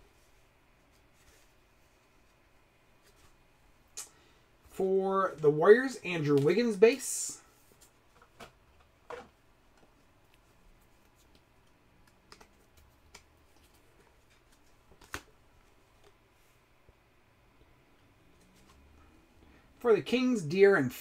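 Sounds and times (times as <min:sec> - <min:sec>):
cards and plastic sleeves clicking: 0:09.2 - 0:15.4.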